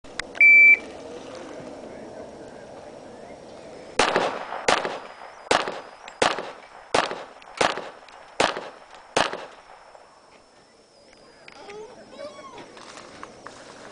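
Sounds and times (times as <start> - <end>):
pistol shots with echo: 4.0 - 10.1.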